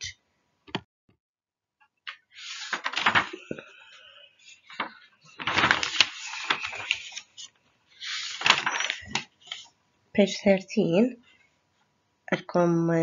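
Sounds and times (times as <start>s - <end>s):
book pages rustling: 2.1s - 9.7s.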